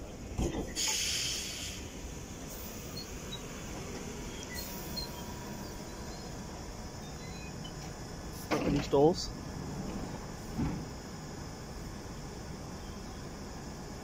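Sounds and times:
train humming: 0.0 - 14.0
compressed-air hiss: 0.7 - 5.6.

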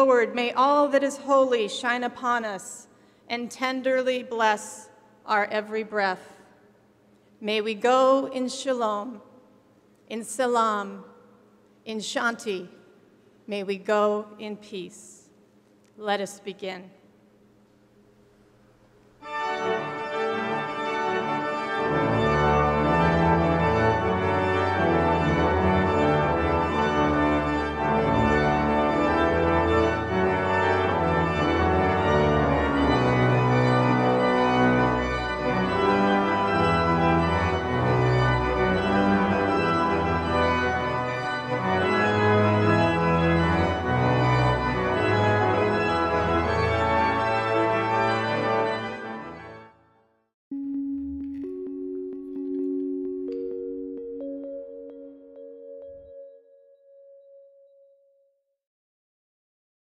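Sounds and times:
pipe organ playing full chords: 19.2 - 49.8, 50.5 - 58.0.

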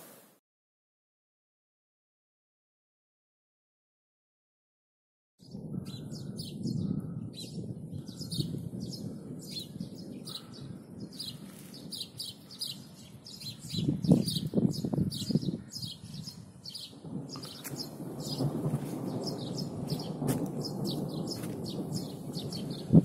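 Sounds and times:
distant thunder rumbling: 5.4 - 23.0
small birds chirping: 5.4 - 23.0.

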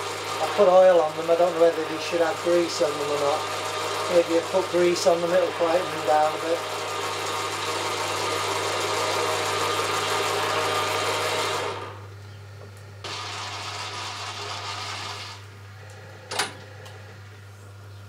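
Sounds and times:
lathe running with gears meshing: 0.0 - 12.0, 13.0 - 15.4.

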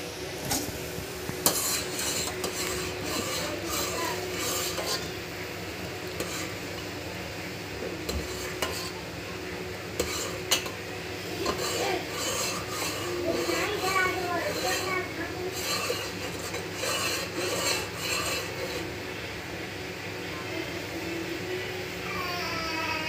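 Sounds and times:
metal ladle scraping pan: 1.4 - 5.2, 5.9 - 6.9, 8.1 - 9.1, 9.9 - 19.0.

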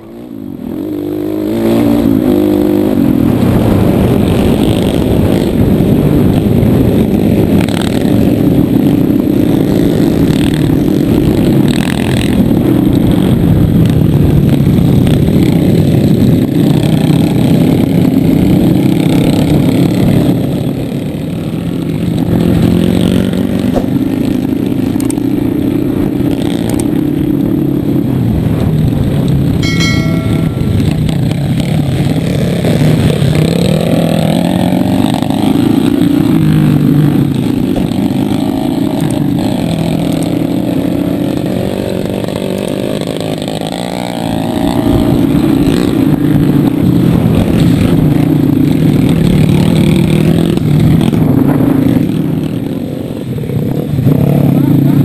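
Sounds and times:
motorcycle engine revving: 0.0 - 55.0
other motorcycles riding: 0.0 - 55.0
short electronic chime: 29.6 - 31.2.

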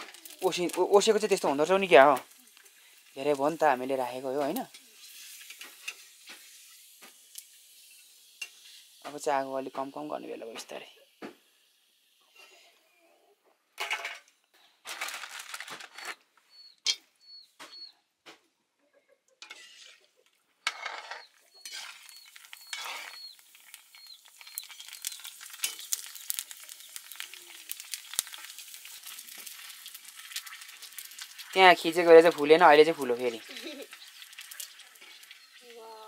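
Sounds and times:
oil sizzling: 0.0 - 12.6, 19.4 - 36.0.

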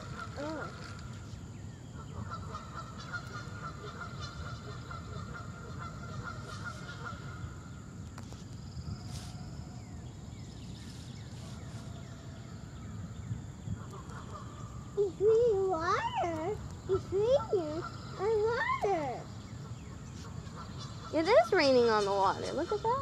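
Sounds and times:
geese honking: 2.0 - 7.7, 14.0 - 23.0.

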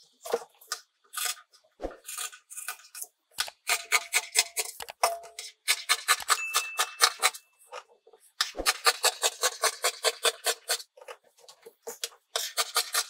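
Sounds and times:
scissors snipping fabric: 11.9 - 13.0.

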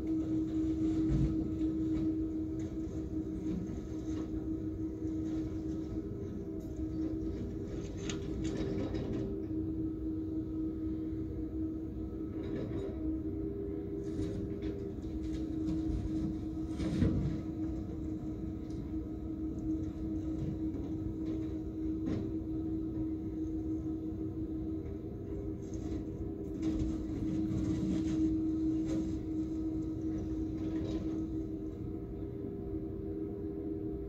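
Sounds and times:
excavator engine rumbling: 12.3 - 32.1.

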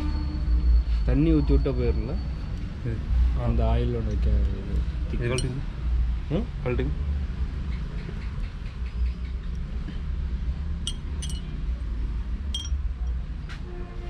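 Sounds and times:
low steady rumble: 10.3 - 13.4
sharp clicks of small metal parts: 10.9 - 11.5, 12.6 - 12.8.

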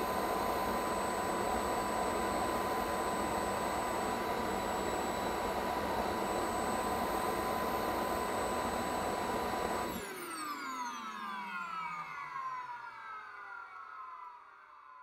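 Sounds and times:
model jet engines whining: 0.0 - 15.0.

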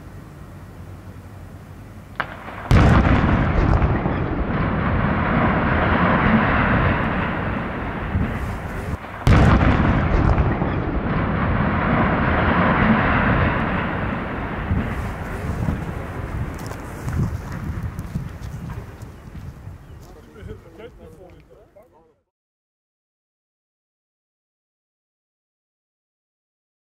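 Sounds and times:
explosive blast: 2.2 - 18.0
structure collapsing rumble: 2.2 - 19.6.

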